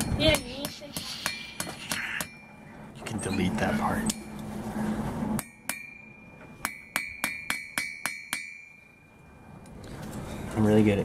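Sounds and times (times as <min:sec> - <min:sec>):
hammer striking steel on anvil: 0:00.0 - 0:02.5, 0:05.4 - 0:09.1
low steady hum: 0:00.0 - 0:11.0.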